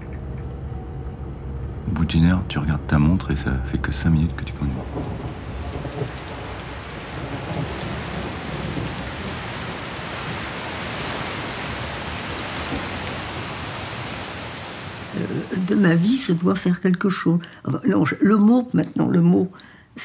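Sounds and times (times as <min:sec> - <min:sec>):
low rumble: 0:00.0 - 0:10.9
heavy rain falling: 0:02.9 - 0:18.0.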